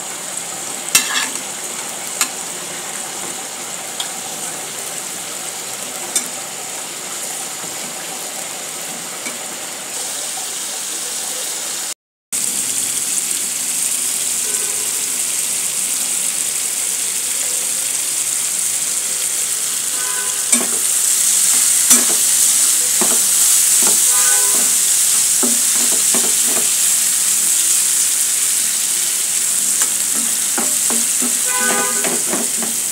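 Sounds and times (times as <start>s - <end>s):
prawns sizzling in a frying pan: 0.0s - 32.9s
spatula scraping a pan: 0.9s - 1.5s, 20.0s - 26.7s, 29.7s - 32.9s.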